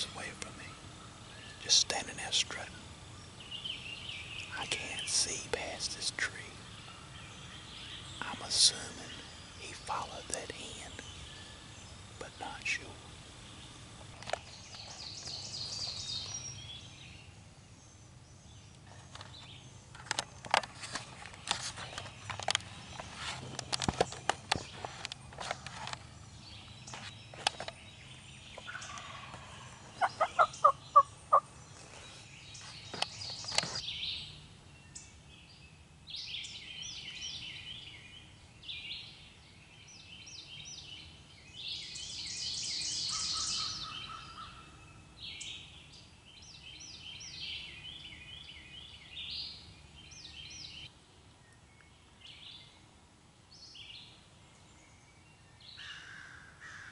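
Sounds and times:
small birds chirping: 0.0 - 56.9
handling clicks and rustles: 19.0 - 26.1
turkey yelps: 30.0 - 31.4.

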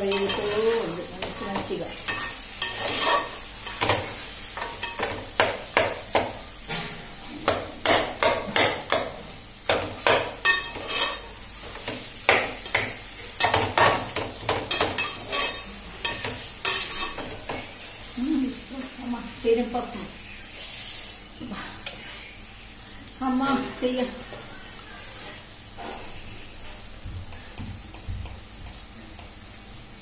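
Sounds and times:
metal ladle scraping a pot: 2.1 - 3.4, 10.5 - 11.2, 15.0 - 15.7, 16.6 - 17.2.

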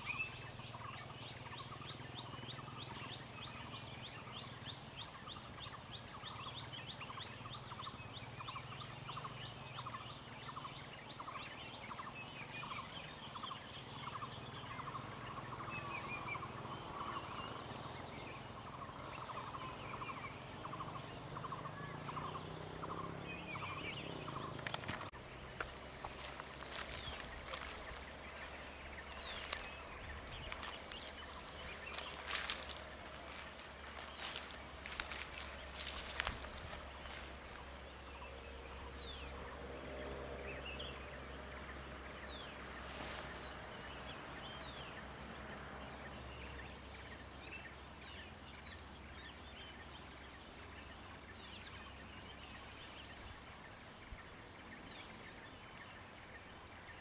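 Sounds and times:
insect drone: 0.0 - 57.0
footsteps on dry leaves: 24.9 - 37.7, 42.8 - 43.6.

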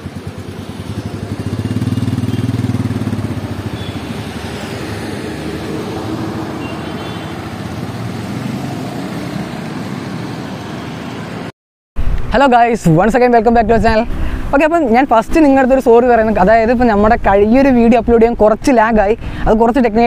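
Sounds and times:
motorcycle engine pulling away: 0.0 - 10.8.

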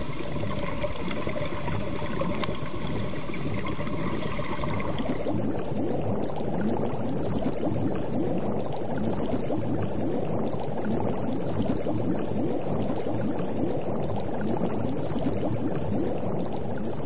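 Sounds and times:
water bubbling: 0.0 - 17.0.

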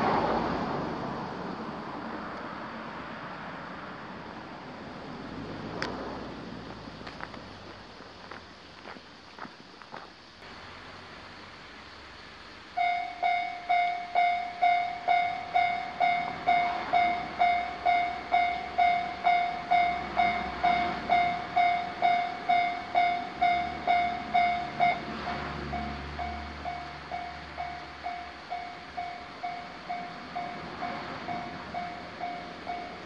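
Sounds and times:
train rumble: 0.0 - 33.0
level crossing warning bell: 12.8 - 33.0.

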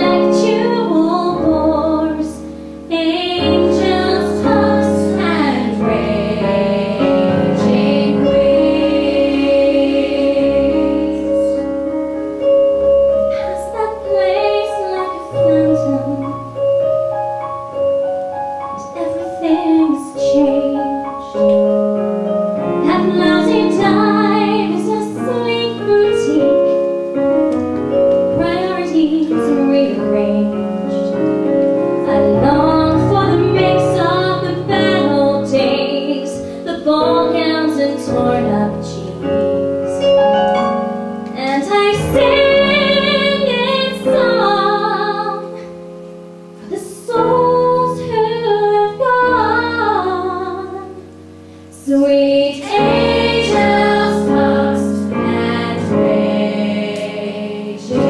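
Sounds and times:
held accompanying notes: 0.0 - 58.0
women's choir singing: 3.3 - 11.7, 22.8 - 26.3, 41.4 - 45.1, 51.8 - 58.0
woman singing solo: 41.4 - 45.6.

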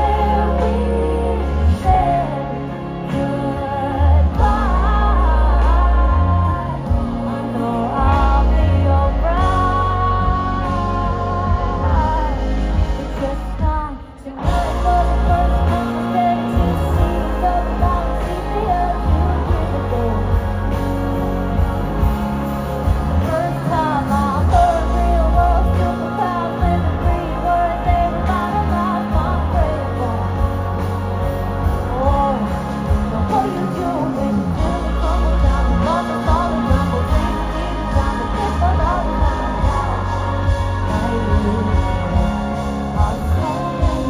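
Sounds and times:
live band playing: 0.0 - 44.0
person singing: 0.0 - 44.0.

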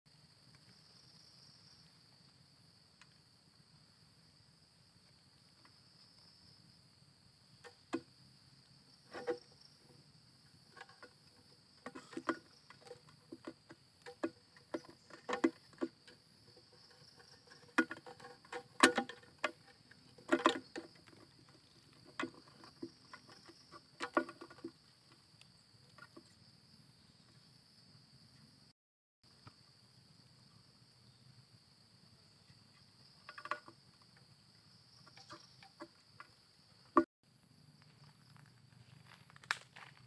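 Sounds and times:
insects trilling: 0.1 - 28.7, 29.3 - 40.0
taps and rustles: 10.7 - 16.2.

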